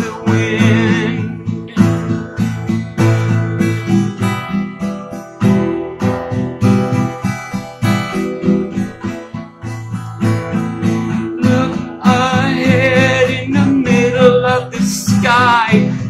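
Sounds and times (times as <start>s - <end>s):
acoustic guitar strumming: 0.0s - 16.0s.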